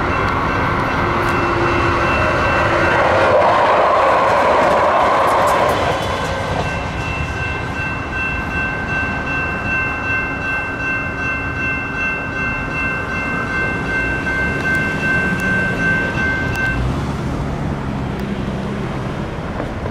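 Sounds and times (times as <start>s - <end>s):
electronic crossing bells ringing: 0.0s - 3.5s, 6.5s - 16.9s
road vehicle engine: 0.0s - 8.6s, 13.1s - 19.9s
road and train noise: 0.0s - 19.9s.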